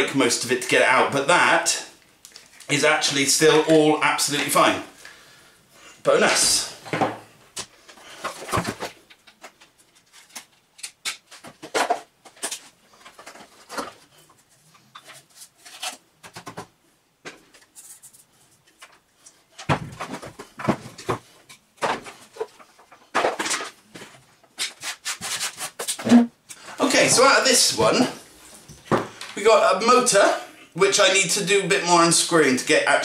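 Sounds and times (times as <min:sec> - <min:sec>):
plastic parts clicking and rattling: 0:07.6 - 0:16.7, 0:17.3 - 0:24.7.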